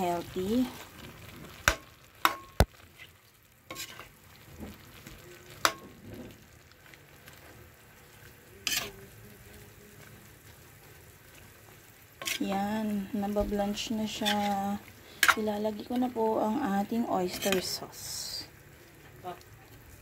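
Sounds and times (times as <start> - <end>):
faint sizzle: 0.0 - 20.0
spatula scraping a frying pan: 1.4 - 5.0, 5.6 - 6.6, 8.6 - 9.2, 12.1 - 12.7, 14.0 - 15.5, 17.2 - 17.8.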